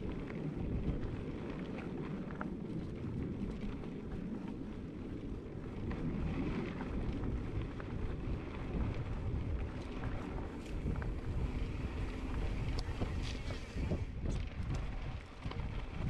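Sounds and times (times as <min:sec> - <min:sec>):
wind buffeting microphone: 0:00.0 - 0:16.0
faint ticks: 0:08.9 - 0:16.0.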